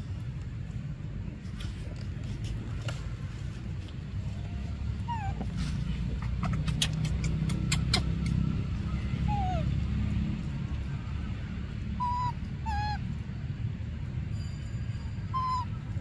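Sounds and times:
infant monkey whimpering: 0:04.4 - 0:08.2, 0:09.2 - 0:09.8, 0:12.0 - 0:13.0, 0:15.3 - 0:15.8
sharp clicks: 0:06.4 - 0:08.4.

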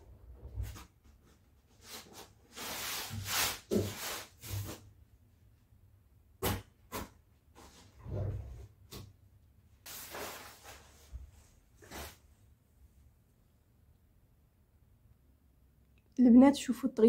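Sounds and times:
cloth rustling and swishing: 0:09.8 - 0:12.3.

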